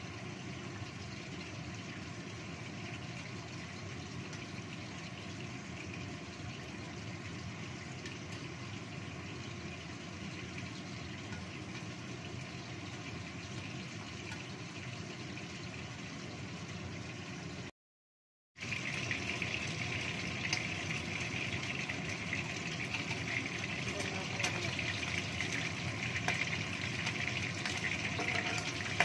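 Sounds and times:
fish frying in oil: 0.0 - 17.7, 18.6 - 29.0.

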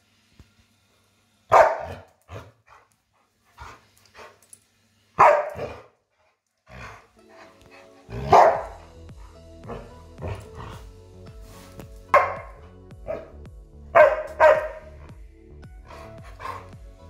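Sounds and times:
dog barking: 1.5 - 2.5, 5.2 - 5.9, 8.2 - 8.9, 12.1 - 13.3, 13.9 - 14.9
background music: 6.6 - 17.0.

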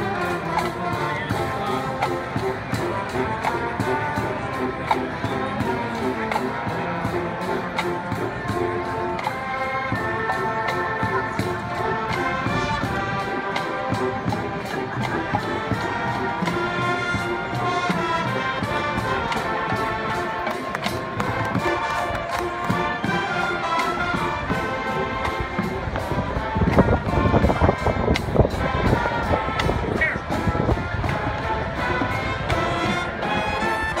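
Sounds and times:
drumline beat: 0.0 - 34.0
marching band brass: 0.0 - 34.0.

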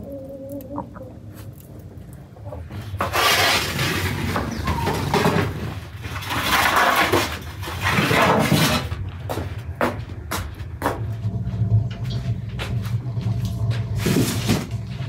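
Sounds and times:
metal pans scraping on oven floor: 2.6 - 9.0, 11.6 - 15.0.

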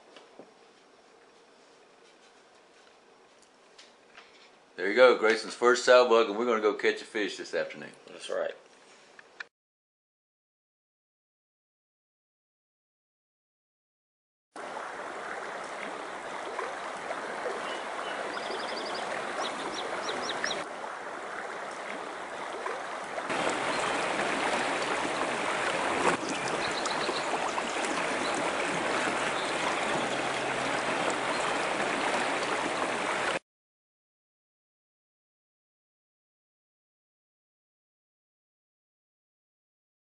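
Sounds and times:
river rushing: 14.6 - 33.4
small bird chirping: 17.6 - 20.6, 26.2 - 27.3.

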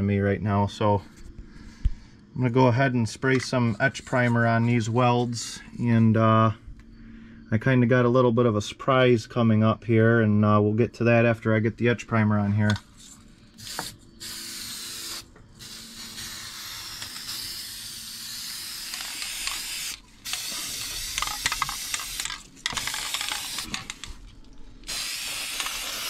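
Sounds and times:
aerosol can spraying: 13.6 - 24.1, 24.8 - 26.0.

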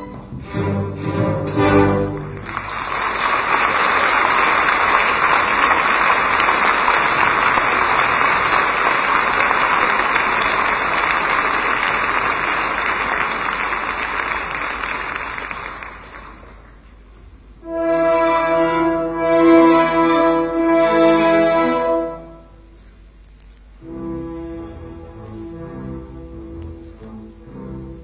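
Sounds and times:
audience applauding: 2.0 - 17.0.

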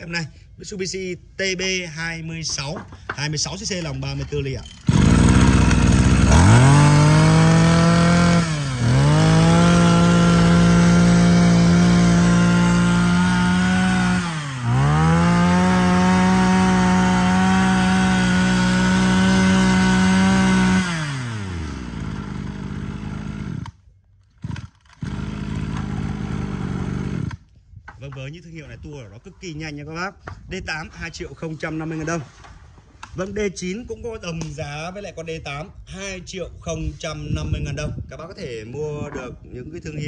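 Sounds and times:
brush-cutter engine running: 4.6 - 27.4.

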